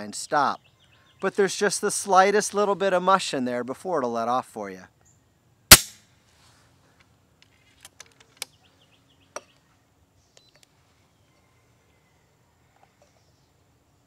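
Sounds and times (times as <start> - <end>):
air rifle shot: 5.7 - 6.0.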